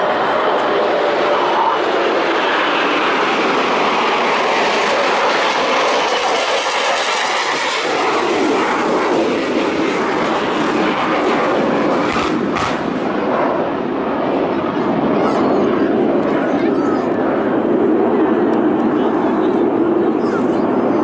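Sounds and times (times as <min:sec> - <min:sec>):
aircraft engines roaring: 0:00.0 - 0:21.0.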